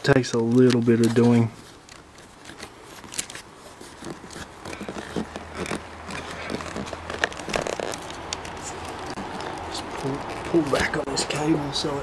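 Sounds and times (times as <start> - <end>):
handling scrapes rustles and clicks: 0.0 - 11.6.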